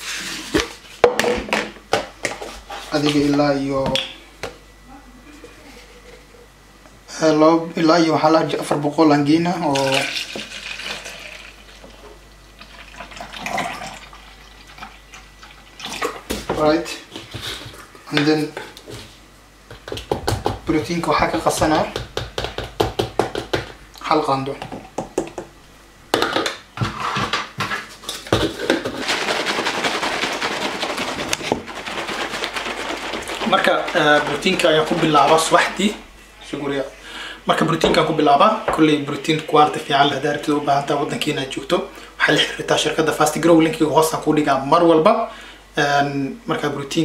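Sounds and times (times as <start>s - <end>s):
milk pouring into plastic cup: 9.7s - 12.0s
liquid sloshing in shaker bottle: 28.2s - 35.8s.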